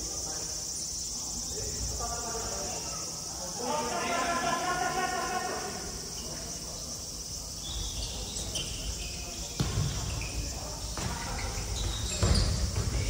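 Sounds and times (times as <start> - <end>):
shoes squeaking on gym floor: 7.6 - 13.0.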